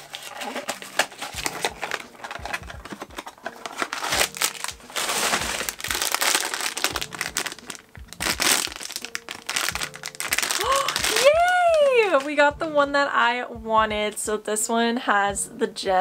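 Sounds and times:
foil wrapper crinkling: 0.0s - 12.4s.

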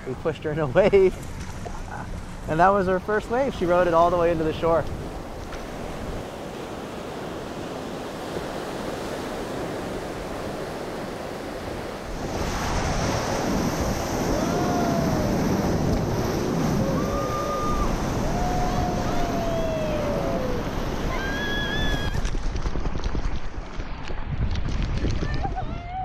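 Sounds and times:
ocean surf breaking: 0.0s - 23.7s
wind buffeting the microphone: 3.4s - 26.0s
water churning around a surfboard: 4.5s - 24.8s.

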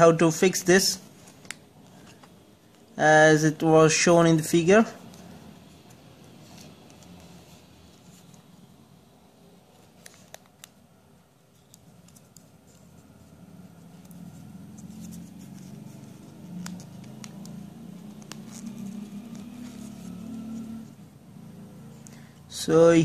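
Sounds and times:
scratchy rubbing: 12.1s - 20.9s.

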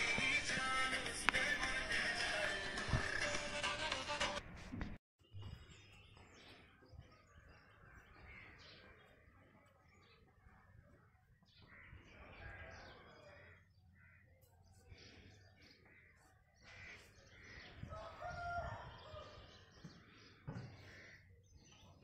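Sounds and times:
birds calling: 5.4s - 22.0s.

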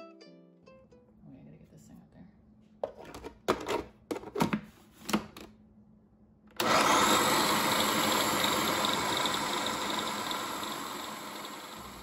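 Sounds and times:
food processor motor running: 6.6s - 12.0s.

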